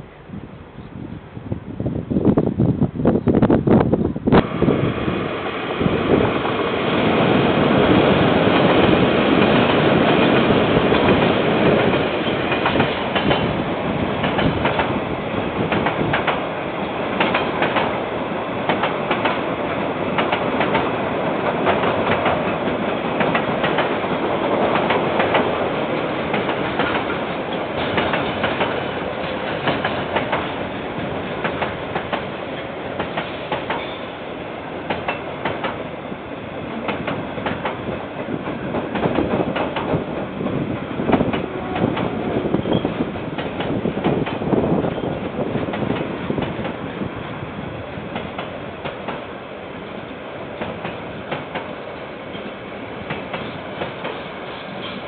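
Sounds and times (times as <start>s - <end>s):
freight train rumble: 0.0s - 55.0s
wheels clacking over rail joints: 5.4s - 15.0s, 15.6s - 34.1s, 36.7s - 46.8s.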